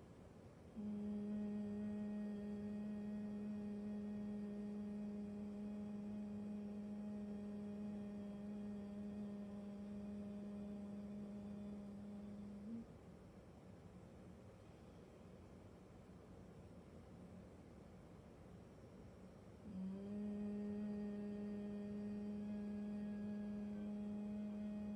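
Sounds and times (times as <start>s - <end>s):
woman humming a low note: 0.7s - 12.9s, 19.6s - 24.9s.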